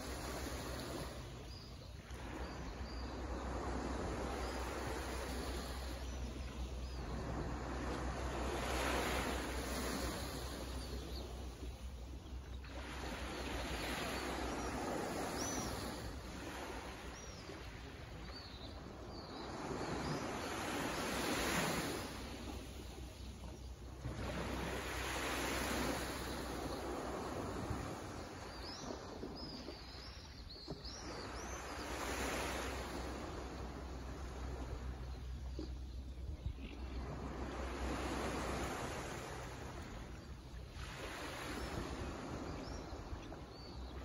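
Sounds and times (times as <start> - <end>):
small waves on sand beach: 0.0 - 44.0.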